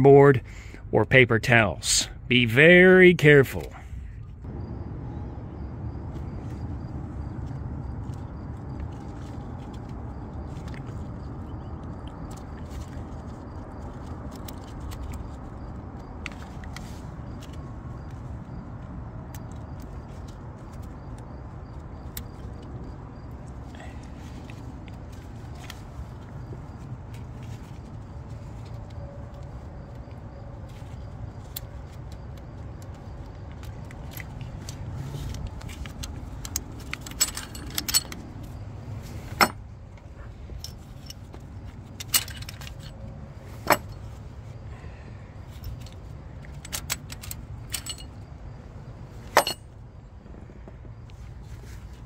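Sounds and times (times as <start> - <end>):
low background rumble: 0.4 - 52.0
metal tools clinking and clattering: 35.9 - 39.6, 40.5 - 43.0, 43.6 - 44.1, 45.5 - 48.2, 49.2 - 49.7.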